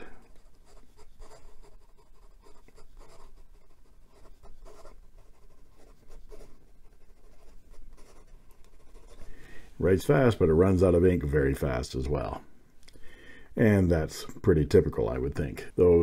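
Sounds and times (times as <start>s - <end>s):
pen nib scratching on paper: 0.2s - 9.4s.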